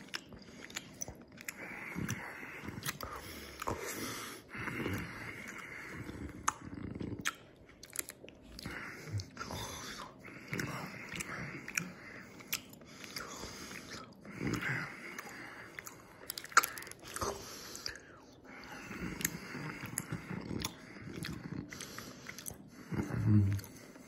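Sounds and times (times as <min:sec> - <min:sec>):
person chewing gummies: 0:00.0 - 0:24.0
sharp mouth clicks: 0:06.4 - 0:09.3, 0:14.5 - 0:18.0.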